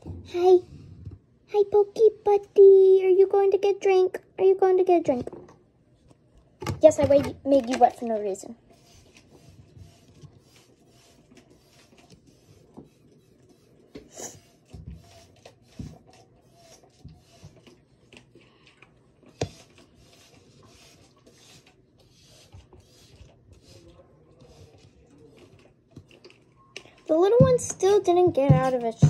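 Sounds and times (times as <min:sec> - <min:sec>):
rubbing and scraping from handling: 0:06.8 - 0:26.5, 0:27.1 - 0:29.0.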